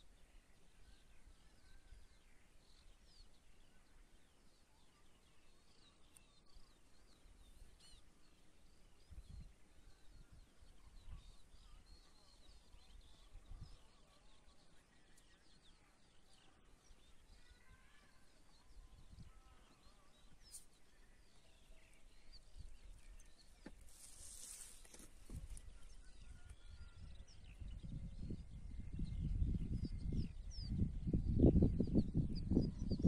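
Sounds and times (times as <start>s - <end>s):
wind rumble on microphone: 9.0s - 11.9s, 18.7s - 19.5s, 25.2s - 33.0s
soft hiss: 20.4s - 25.7s.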